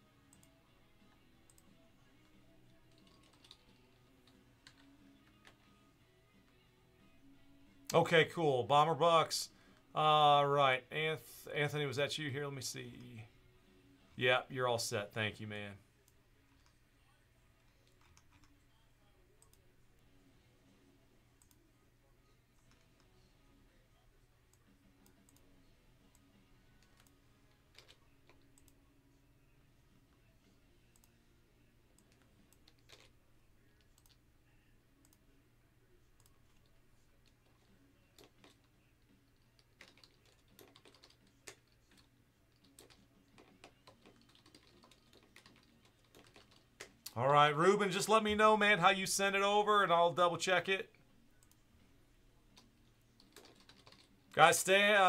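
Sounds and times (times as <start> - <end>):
faint low hum: 0.0 - 54.7
faint keyboard typing: 0.3 - 5.8, 17.5 - 19.7, 21.4 - 21.7, 22.5 - 23.3, 24.0 - 28.9, 30.8 - 31.2, 31.9 - 35.3, 36.1 - 47.2, 51.2 - 51.8, 52.4 - 55.0
keyboard and mouse clicks: 26.8 - 28.8, 32.0 - 33.2, 33.8 - 34.2, 39.3 - 47.2, 52.5 - 54.2.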